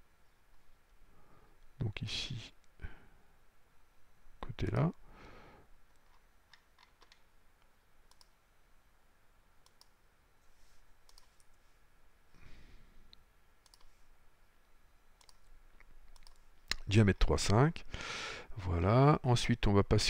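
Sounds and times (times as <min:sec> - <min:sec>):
computer mouse clicks: 0:05.9 - 0:07.3, 0:08.1 - 0:08.4, 0:09.6 - 0:10.0, 0:11.0 - 0:11.6, 0:13.6 - 0:13.9, 0:15.2 - 0:15.5, 0:16.1 - 0:16.8
soft rustle: 0:10.3 - 0:12.0.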